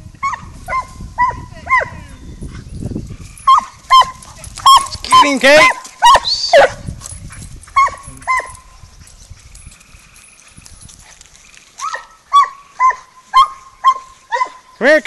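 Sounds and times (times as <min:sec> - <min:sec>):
dog barking: 0:03.5 - 0:06.8, 0:07.7 - 0:08.7, 0:11.8 - 0:14.7.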